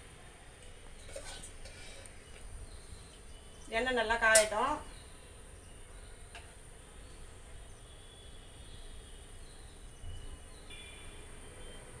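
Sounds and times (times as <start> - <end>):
faint high chirps: 4.6 - 12.0.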